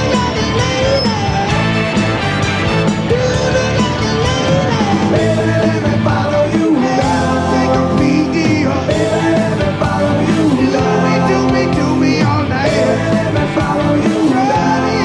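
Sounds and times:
rock band playing: 0.0s - 15.0s
male vocal singing: 3.0s - 15.0s.

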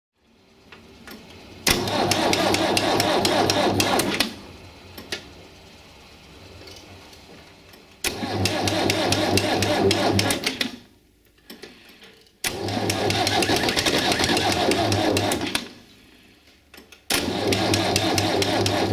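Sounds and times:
electric starter cranking diesel engine: 1.6s - 4.4s, 8.0s - 10.7s, 12.4s - 15.8s, 17.1s - 18.9s.

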